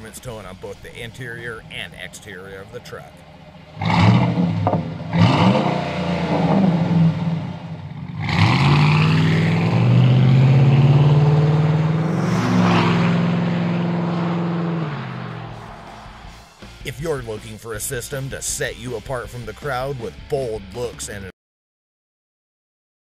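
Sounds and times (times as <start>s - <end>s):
engine revving and accelerating: 3.6s - 16.6s.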